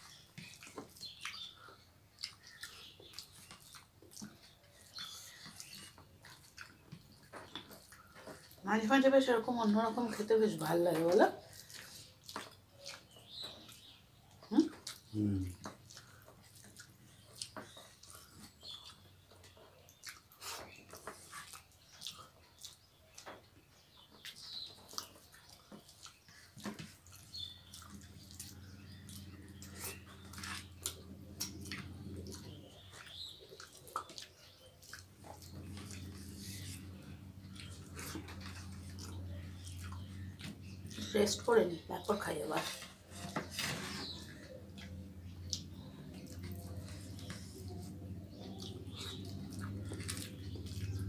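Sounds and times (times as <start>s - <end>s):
chewing and lip-smacking: 0.0s - 8.7s, 10.9s - 51.0s
steady low hum: 35.1s - 41.6s.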